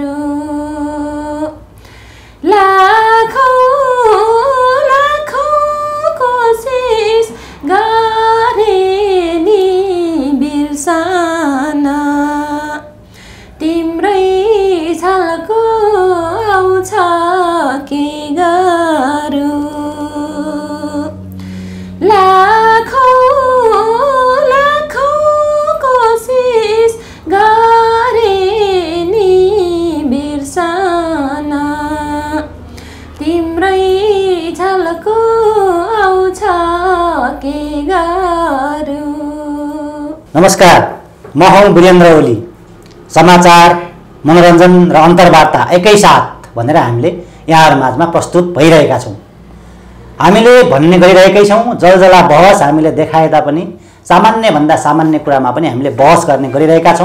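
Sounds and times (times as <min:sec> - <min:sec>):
woman singing: 0:00.0 - 0:01.8, 0:02.4 - 0:13.0, 0:13.6 - 0:40.3.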